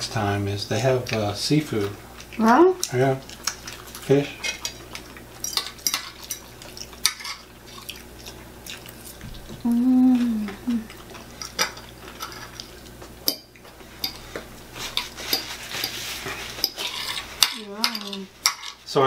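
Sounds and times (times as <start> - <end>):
cutlery scraping against a plate: 5.4 - 7.5, 13.3 - 18.8
person humming: 9.5 - 11.0.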